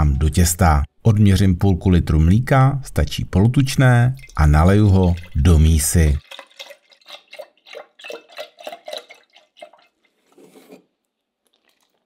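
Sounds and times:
milk glugging into a jug: 4.0 - 12.0.

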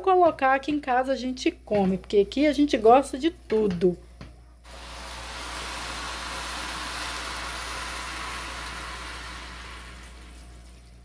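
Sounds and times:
water pouring into a pot: 4.7 - 11.0.

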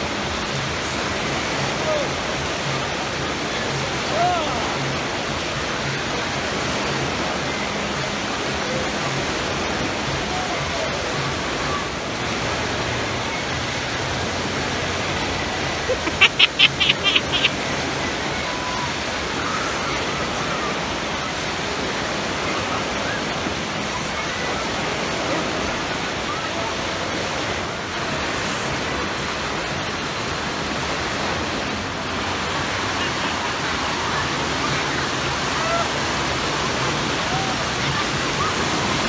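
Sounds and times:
faint voices of swimmers: 0.0 - 39.0.

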